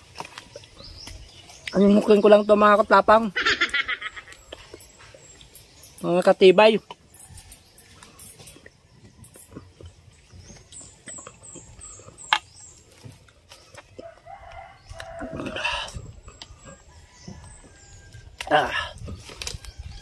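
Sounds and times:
small bird chirping: 0:00.2 - 0:15.2
rooster crowing: 0:14.0 - 0:15.9.

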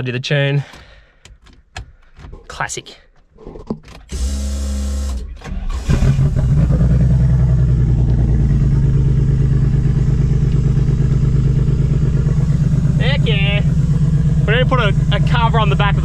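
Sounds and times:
engine cranking on starter: 0:04.1 - 0:09.3
engine idling: 0:05.5 - 0:16.0.

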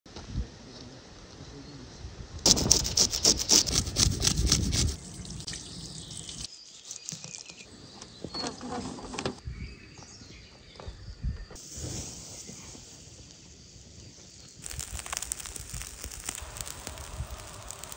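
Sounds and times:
hose water splashing on fish: 0:14.6 - 0:17.9.

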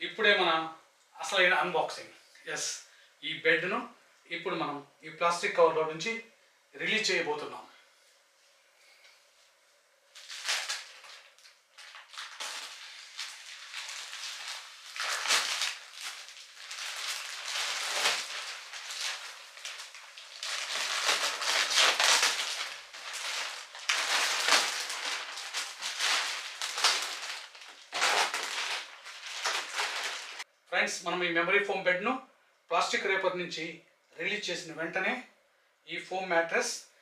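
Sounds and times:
plastic wrapping crinkling: 0:10.1 - 0:30.4.

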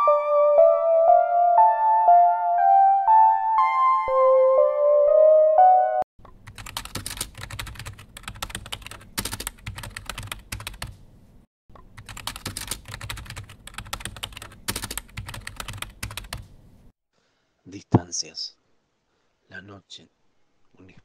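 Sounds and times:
piano tune: 0:00.0 - 0:06.1
typing on a keyboard: 0:06.4 - 0:11.0, 0:12.0 - 0:16.5.

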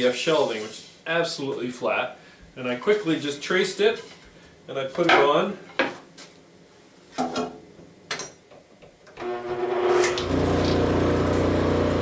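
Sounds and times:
electric motor humming: 0:09.2 - 0:12.0.

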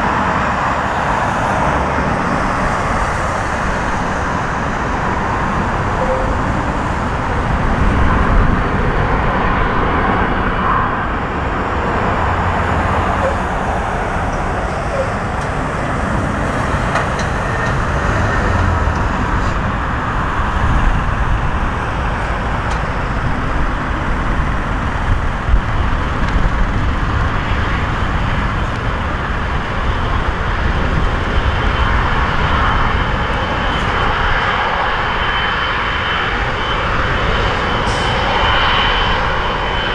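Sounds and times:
high fan whine: 0:00.0 - 0:39.9
jet engines rumbling: 0:00.0 - 0:39.9.

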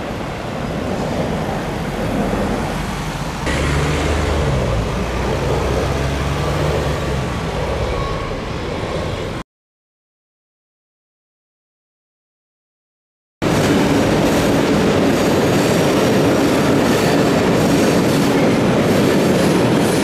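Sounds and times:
electric train passing: 0:00.0 - 0:09.4, 0:13.4 - 0:20.0
road traffic passing: 0:00.0 - 0:09.4
trains rolling over bridge: 0:00.0 - 0:09.4, 0:13.4 - 0:20.0.

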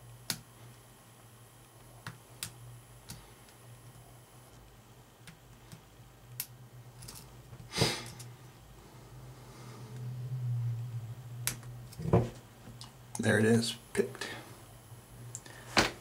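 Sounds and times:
low hum: 0:05.9 - 0:13.2.

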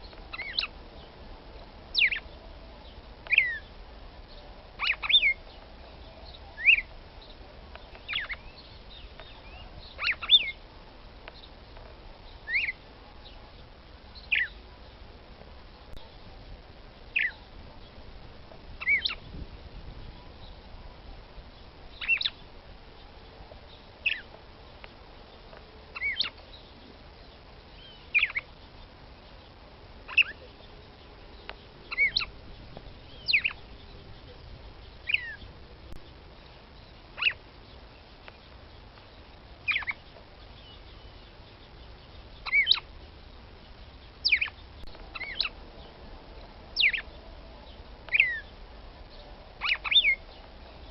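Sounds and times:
bird calling sharp notes: 0:04.8 - 0:05.5, 0:08.0 - 0:10.6, 0:31.8 - 0:32.4, 0:42.4 - 0:42.9, 0:44.2 - 0:45.6, 0:46.8 - 0:47.2, 0:49.6 - 0:50.3.

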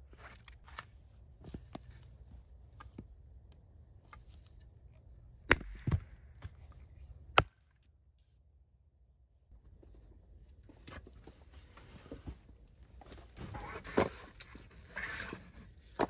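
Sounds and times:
hatchet chopping wood: 0:05.5 - 0:06.5, 0:07.3 - 0:07.7.

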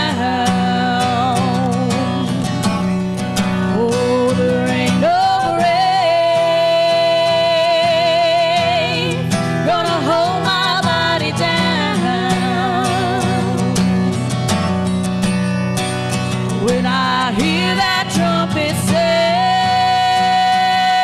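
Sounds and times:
woman singing gospel song: 0:00.0 - 0:02.3, 0:03.7 - 0:13.8, 0:16.6 - 0:21.0
strummed acoustic guitar: 0:00.0 - 0:21.0.

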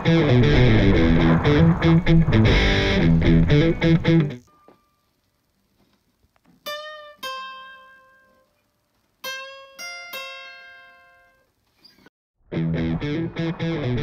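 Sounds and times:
guitar plucked notes: 0:00.0 - 0:04.5, 0:06.6 - 0:08.5, 0:09.2 - 0:11.4, 0:12.5 - 0:14.0.

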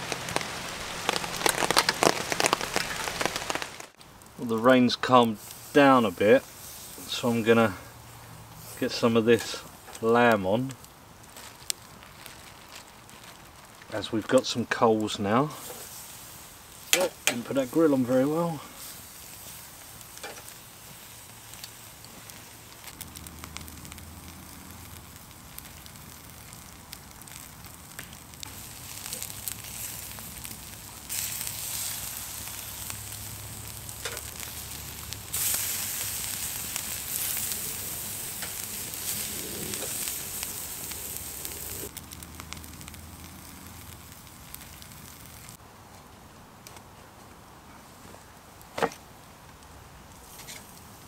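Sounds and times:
meat sizzling on a grill: 0:00.0 - 0:45.6
embers crackling: 0:00.0 - 0:51.0.

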